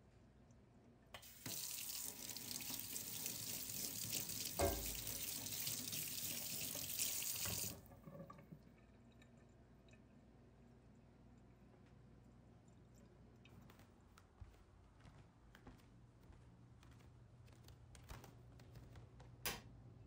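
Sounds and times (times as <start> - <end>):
faucet turning: 1.2 - 8.4
water running into sink: 1.2 - 8.8
thump in sink: 4.5 - 5.2.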